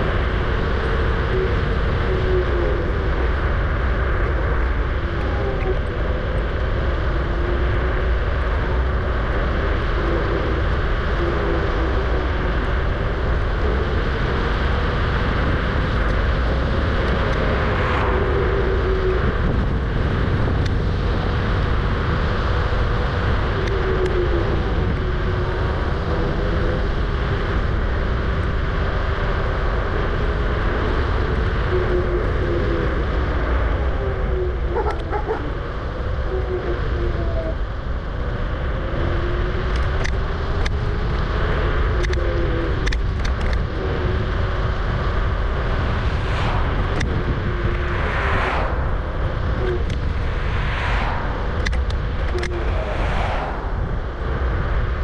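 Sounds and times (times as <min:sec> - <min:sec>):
wavering motor whine: 0:00.0 - 0:55.0
wind and road rumble: 0:00.0 - 0:55.0
loud rush: 0:45.4 - 0:55.0.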